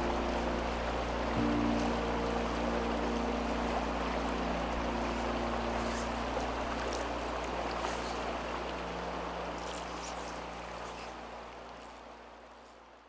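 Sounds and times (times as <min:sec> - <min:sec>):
flowing river water: 0:00.0 - 0:13.0.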